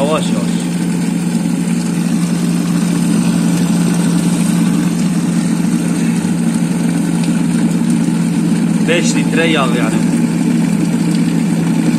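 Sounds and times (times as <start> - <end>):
electric mixer motor humming: 0.0 - 11.9.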